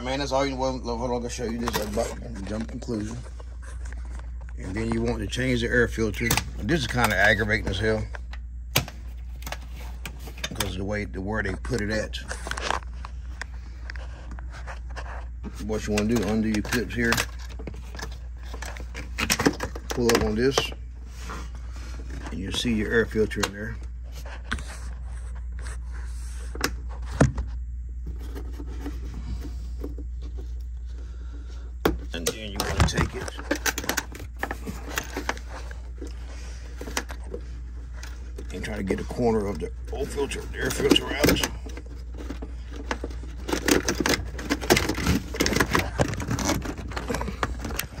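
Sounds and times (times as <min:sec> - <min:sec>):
steady low hum: 0:00.0 - 0:48.0
plastic filter scraping and knocking: 0:26.0 - 0:48.0.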